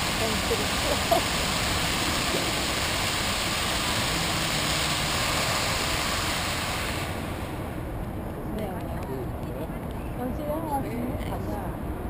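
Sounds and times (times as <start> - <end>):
fountain water rushing: 0.0 - 9.4.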